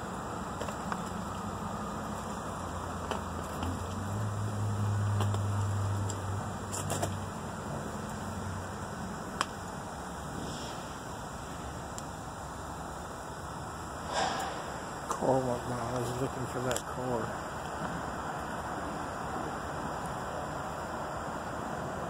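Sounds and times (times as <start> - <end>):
outdoor background noise: 0.0 - 22.0
passing vehicle engine hum: 0.0 - 22.0.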